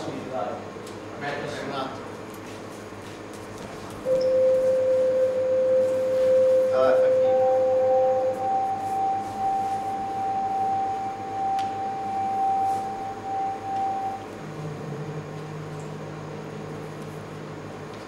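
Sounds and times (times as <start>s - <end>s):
steady high pure tone: 4.0s - 17.8s
lower wavering hum: 4.0s - 17.9s.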